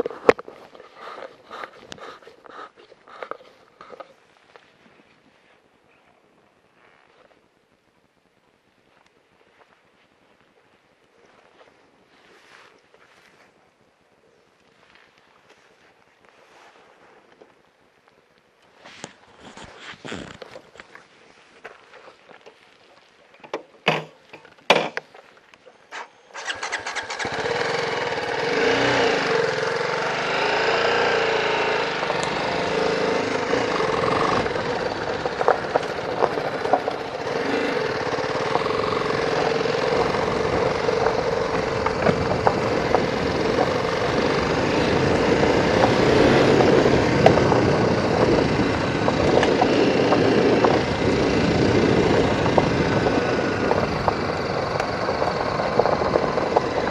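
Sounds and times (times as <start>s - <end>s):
tyres on gravel: 18.7s - 56.9s
motorcycle engine revving: 25.9s - 56.9s.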